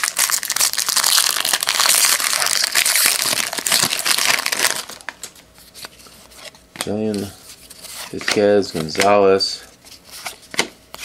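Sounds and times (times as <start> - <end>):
foil wrapper crinkling: 0.0 - 5.4.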